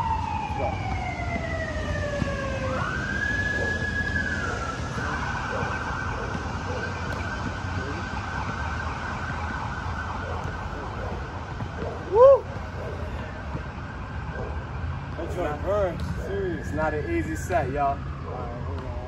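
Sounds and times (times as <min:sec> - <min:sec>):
emergency siren wailing and yelping: 0:00.0 - 0:19.0
traffic rumble: 0:00.0 - 0:19.0.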